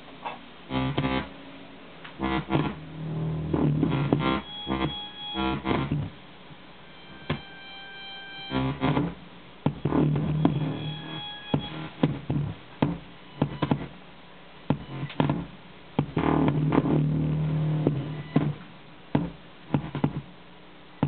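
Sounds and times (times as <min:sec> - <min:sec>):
muffled instrumental music: 0:02.0 - 0:14.0.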